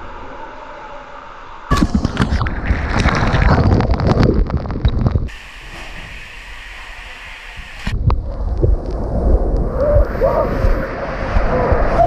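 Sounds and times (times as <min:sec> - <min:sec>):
knocks and bumps: 0:01.7 - 0:05.3
water rushing down slide tube: 0:01.7 - 0:12.0.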